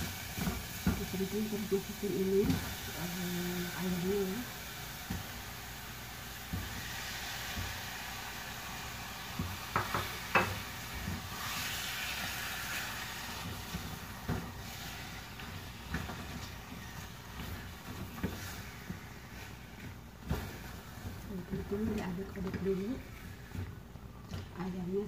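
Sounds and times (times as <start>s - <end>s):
meat sizzling in oil: 0.0s - 23.6s
spatula knocking against pot: 9.7s - 10.6s.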